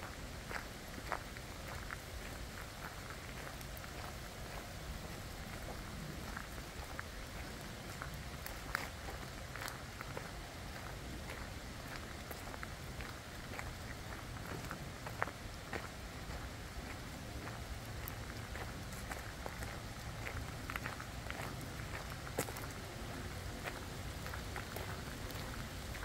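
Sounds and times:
steady hiss of rain: 0.0s - 26.0s.

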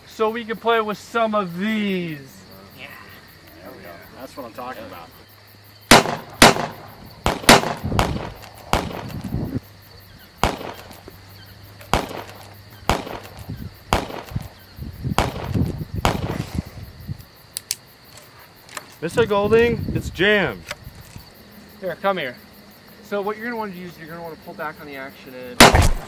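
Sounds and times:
rifle shots: 5.9s - 9.2s, 10.4s - 11.0s, 11.9s - 14.5s, 15.2s - 16.6s, 25.6s - 26.0s.

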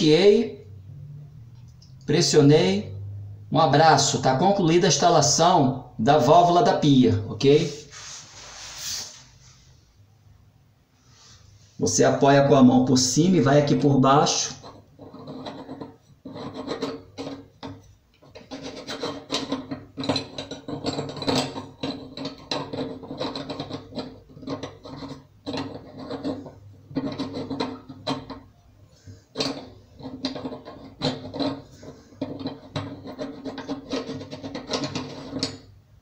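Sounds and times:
threaded fitting scraping on sink: 14.3s - 35.7s.

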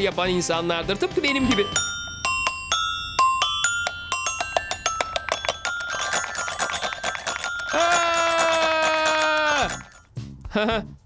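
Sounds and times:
toy xylophone notes: 1.3s - 10.1s.

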